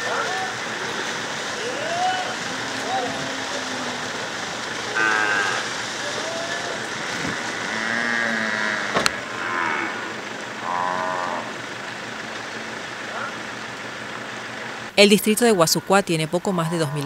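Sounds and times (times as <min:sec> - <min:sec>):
drawn-out calls: 0:00.0 - 0:11.9, 0:13.0 - 0:13.7, 0:16.5 - 0:17.0
cattle splashing through water: 0:00.0 - 0:13.6
sharp crack: 0:08.8 - 0:09.2.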